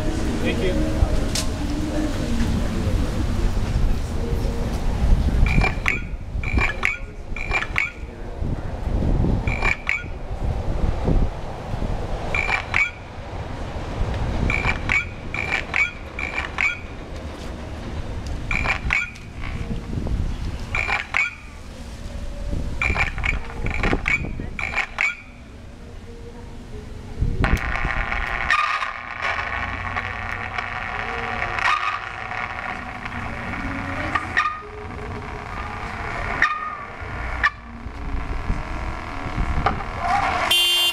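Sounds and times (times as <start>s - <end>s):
low rumbling noise: 0.0s - 40.5s
chirping car alarm tones: 5.5s - 8.1s, 9.5s - 10.2s, 12.3s - 13.1s, 14.5s - 17.0s, 18.5s - 19.2s, 20.7s - 21.6s, 22.8s - 25.5s, 40.5s - 40.9s.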